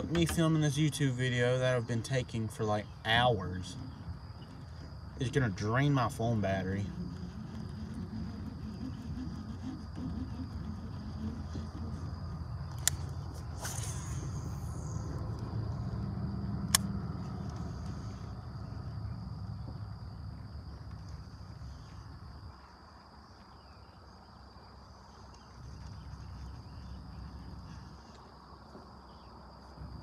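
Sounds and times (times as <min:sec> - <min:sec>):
insect chorus trilling: 0:00.0 - 0:30.0
low rumble: 0:02.7 - 0:22.5
sharp click: 0:12.7 - 0:14.1, 0:16.7 - 0:16.9.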